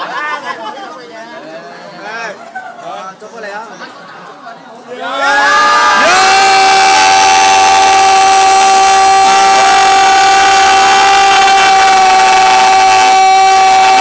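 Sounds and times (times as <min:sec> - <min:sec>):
people holding long shout: 0:04.9 - 0:14.0.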